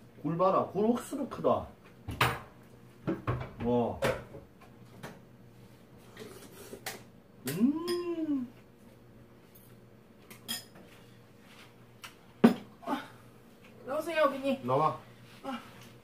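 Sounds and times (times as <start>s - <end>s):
person calling out: 7.4s - 8.6s.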